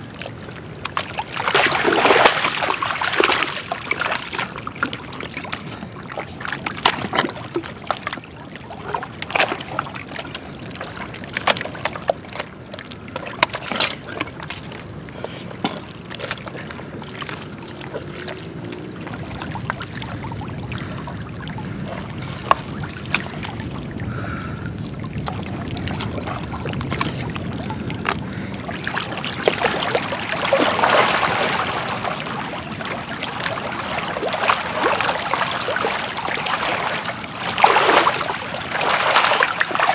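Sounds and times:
water sloshing and trickling: 0.0 - 39.9
mud squelching and popping: 8.8 - 21.0, 25.1 - 32.3, 33.4 - 39.9.

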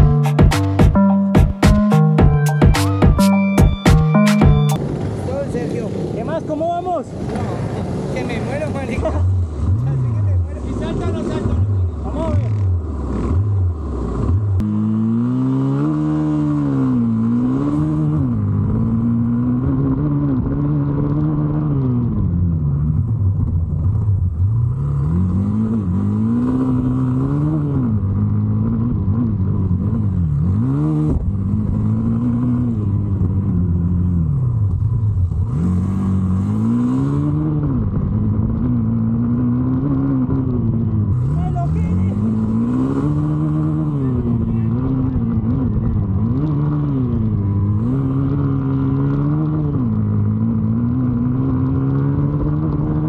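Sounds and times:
motorcycle engine revving: 7.1 - 53.0.

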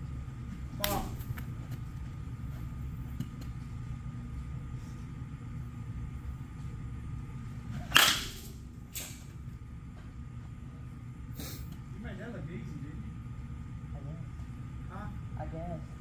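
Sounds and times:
bat hitting baseball: 7.8 - 9.1.

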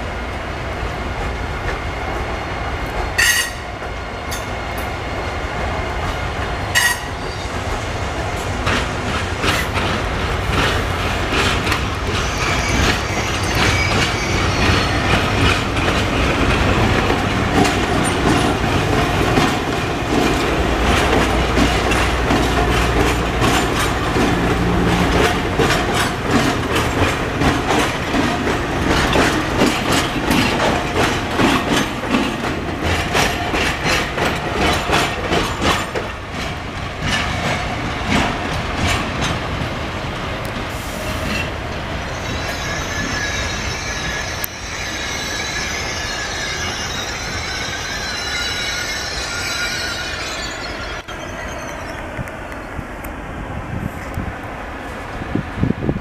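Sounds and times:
wheels clattering over rail joints: 8.6 - 41.8.

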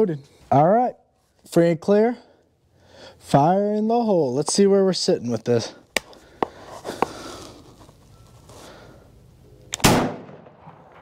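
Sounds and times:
shotgun shot: 9.8 - 11.0.

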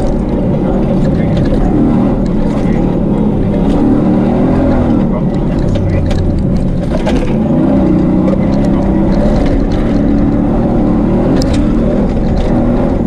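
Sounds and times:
engine running hard: 0.0 - 13.0
heavy steady rumble: 0.0 - 13.0.

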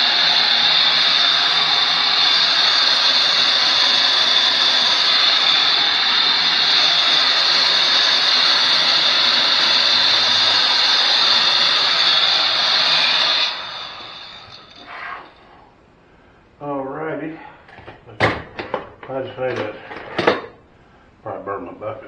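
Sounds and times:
heat gun blowing with high whine: 0.0 - 15.6.

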